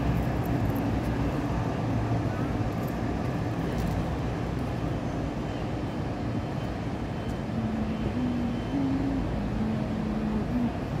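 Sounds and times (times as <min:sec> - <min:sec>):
city traffic rumble: 0:00.0 - 0:11.0
low hum shifting in pitch: 0:07.5 - 0:11.0.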